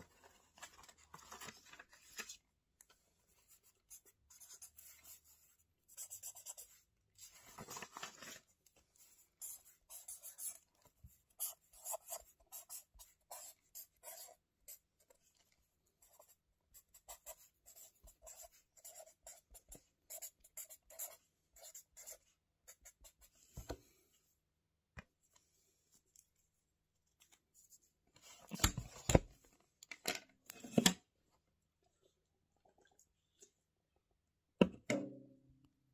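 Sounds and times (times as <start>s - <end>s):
pen scratching on paper: 3.6s - 6.8s, 9.4s - 10.6s, 11.3s - 14.9s, 16.0s - 23.3s.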